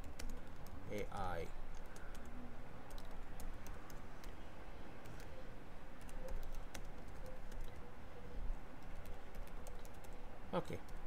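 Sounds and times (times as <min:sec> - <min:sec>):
keyboard keys clicking: 0:01.7 - 0:02.3, 0:02.9 - 0:04.3, 0:06.0 - 0:07.8, 0:08.8 - 0:10.2.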